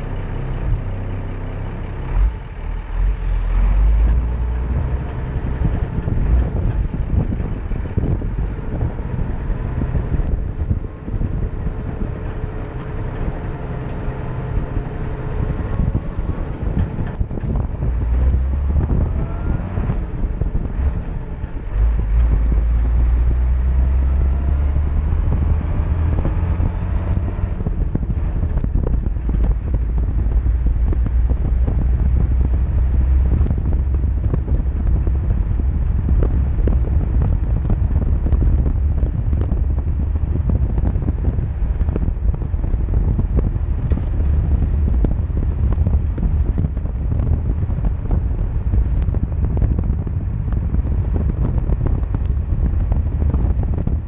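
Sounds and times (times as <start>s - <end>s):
car road and engine noise: 0.0s - 54.0s
wind rumble on microphone: 0.0s - 54.0s.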